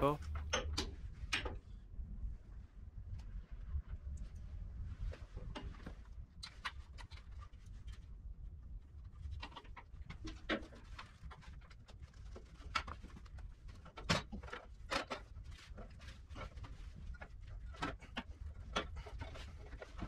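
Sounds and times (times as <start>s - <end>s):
low steady hum: 0.0s - 6.2s
clicks and knocks of handling: 9.2s - 20.0s.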